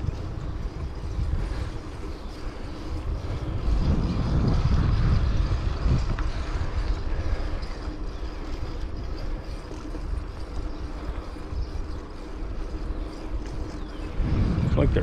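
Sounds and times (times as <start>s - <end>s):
bicycle tyres rolling on pavement: 0.0s - 15.0s
wind on microphone: 0.0s - 15.0s.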